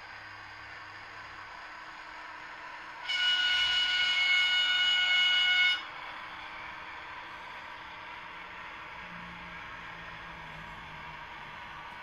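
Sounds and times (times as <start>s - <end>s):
model train horn chord: 3.0s - 5.9s.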